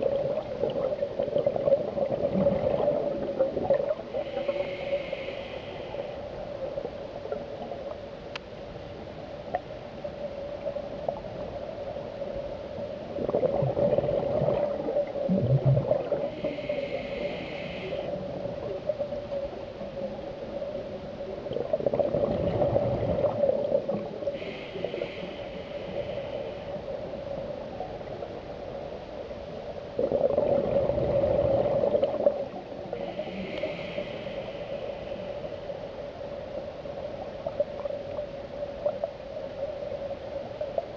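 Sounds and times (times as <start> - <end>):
exhaled bubbles gurgling: 0.0 - 5.3, 10.4 - 28.9, 29.9 - 40.9
steady hum: 0.0 - 40.9
regulator inhalation hiss: 4.1 - 6.4, 16.3 - 18.2, 24.4 - 27.0, 32.9 - 35.8.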